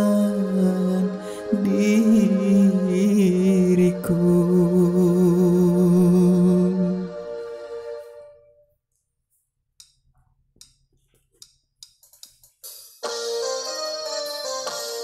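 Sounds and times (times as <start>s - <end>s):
karaoke backing music: 0.0s - 8.2s, 13.0s - 15.0s
keyboard-led music: 0.0s - 8.7s, 13.0s - 15.0s.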